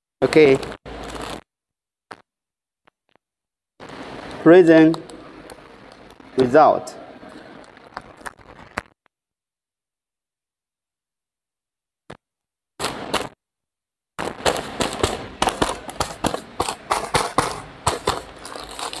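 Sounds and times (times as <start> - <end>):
plastic bags crinkling: 0.5 - 1.4, 7.2 - 8.8, 14.2 - 19.0.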